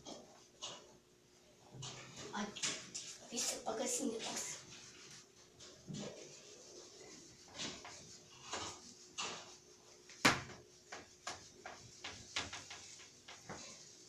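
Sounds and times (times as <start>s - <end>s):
eraser wiping a whiteboard: 3.4s - 14.0s.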